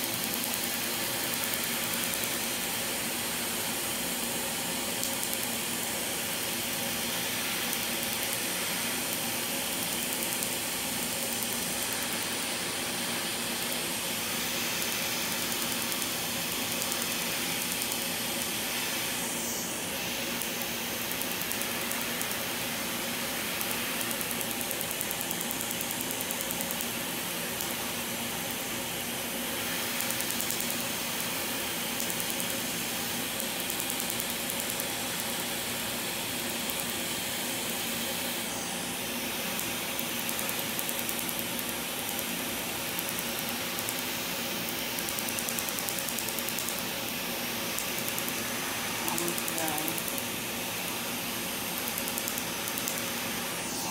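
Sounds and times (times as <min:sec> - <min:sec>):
machine whir: 0:00.0 - 0:53.9
laser snapping ticks: 0:15.5 - 0:18.5, 0:20.4 - 0:22.4, 0:30.0 - 0:30.8, 0:32.0 - 0:32.6, 0:33.4 - 0:35.3, 0:39.6 - 0:42.3, 0:42.9 - 0:44.0, 0:45.0 - 0:46.8, 0:47.7 - 0:48.4, 0:49.1 - 0:50.3, 0:51.8 - 0:53.0.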